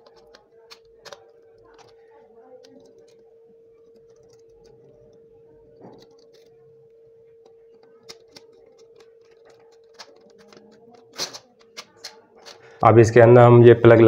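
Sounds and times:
screwdriver clicking and scraping: 0:00.0 - 0:02.0, 0:05.8 - 0:06.6, 0:07.4 - 0:12.7
faint steady hum: 0:00.0 - 0:14.0.

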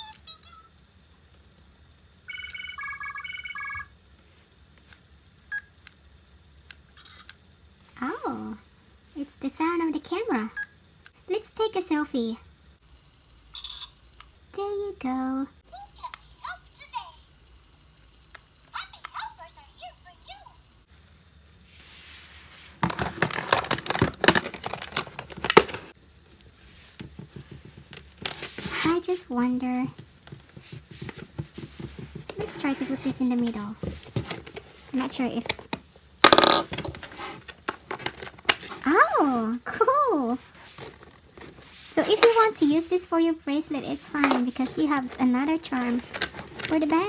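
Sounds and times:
toy phone beeping ringtone: 0:02.3 - 0:03.9, 0:07.0 - 0:07.3, 0:13.5 - 0:14.0
plastic toys clicking and rustling: 0:22.8 - 0:28.9, 0:30.0 - 0:39.0, 0:44.1 - 0:47.0.

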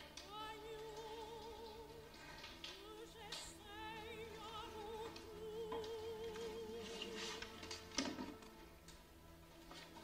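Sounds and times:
operatic singing voice: 0:00.0 - 0:07.7
soft low sustained accompaniment: 0:00.0 - 0:10.0.

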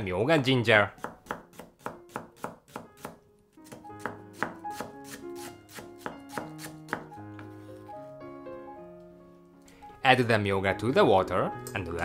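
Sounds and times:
soft background music: 0:00.0 - 0:12.0
knife slicing on cutting board: 0:01.0 - 0:07.5.

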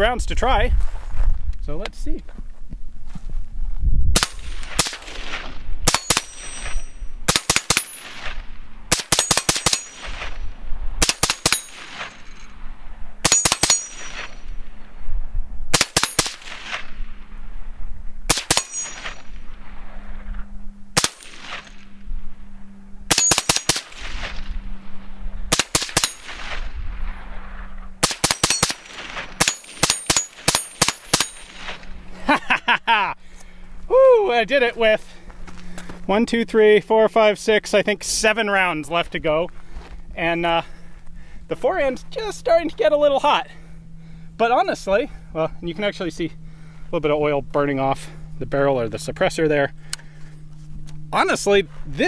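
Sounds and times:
suppressed gunshots: 0:04.1 - 0:10.4, 0:11.0 - 0:12.4, 0:13.2 - 0:14.6, 0:15.7 - 0:17.1, 0:18.3 - 0:19.6, 0:20.9 - 0:22.0, 0:23.1 - 0:24.6, 0:25.5 - 0:27.2, 0:28.0 - 0:31.9
short metallic rings: 0:04.2 - 0:04.8, 0:05.9 - 0:08.2, 0:09.1 - 0:10.2, 0:11.1 - 0:12.6, 0:13.2 - 0:14.5, 0:18.5 - 0:19.4, 0:23.1 - 0:23.9, 0:25.9 - 0:26.4, 0:28.2 - 0:31.9.

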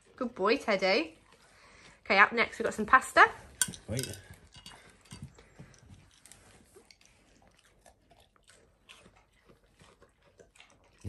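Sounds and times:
dog crunching and chewing: 0:03.5 - 0:11.0.

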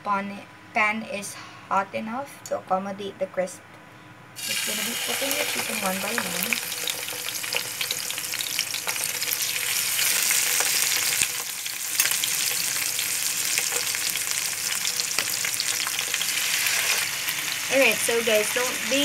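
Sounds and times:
chicken sizzling in hot oil: 0:04.4 - 0:19.0.

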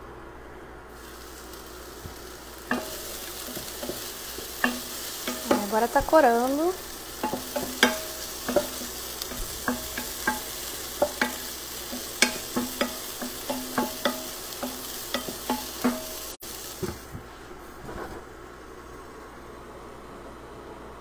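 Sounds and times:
frying sizzle: 0:00.9 - 0:17.2
wooden spoon knocking pot: 0:02.7 - 0:06.1, 0:07.2 - 0:16.2.

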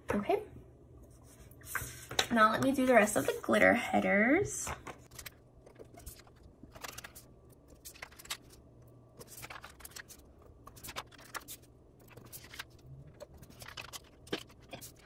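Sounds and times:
faint low hum: 0:00.0 - 0:15.0
paper rustling and crinkling: 0:05.0 - 0:08.6, 0:09.2 - 0:15.0.

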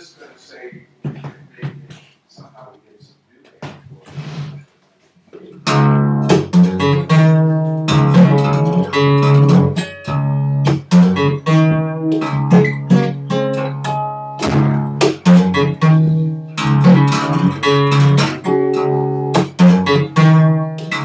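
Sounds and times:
fingerstyle acoustic guitar: 0:05.5 - 0:21.0.

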